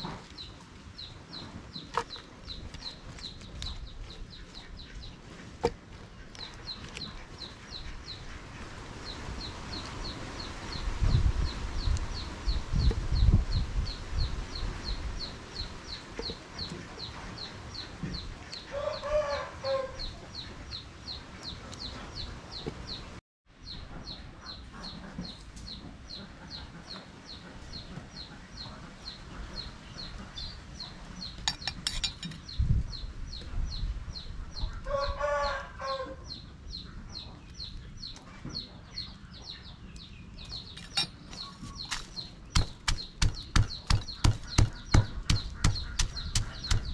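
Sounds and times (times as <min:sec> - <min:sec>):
rooster crowing: 0:18.7 - 0:20.0, 0:34.9 - 0:36.2.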